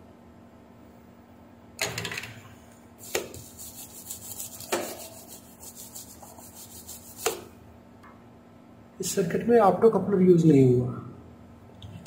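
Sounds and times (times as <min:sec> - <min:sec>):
toothbrush scrubbing circuit board: 0:03.0 - 0:07.4.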